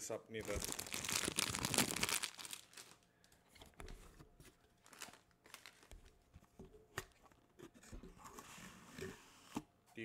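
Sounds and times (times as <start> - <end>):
plastic wrapper crinkling: 0.4 - 3.4, 4.8 - 6.0.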